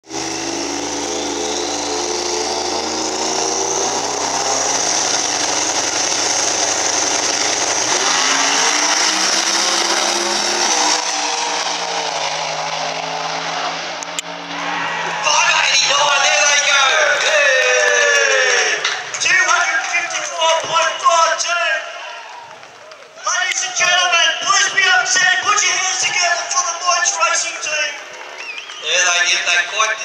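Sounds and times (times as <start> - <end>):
drag racing car engine accelerating: 0.0 - 21.5.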